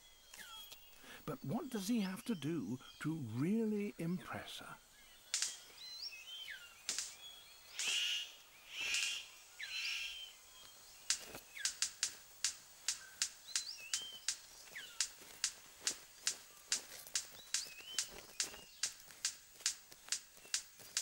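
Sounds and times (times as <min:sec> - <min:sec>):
bird making sharp clicks: 0:05.2 - 0:10.2, 0:11.0 - 0:21.0
bird giving harsh calls: 0:05.2 - 0:10.4.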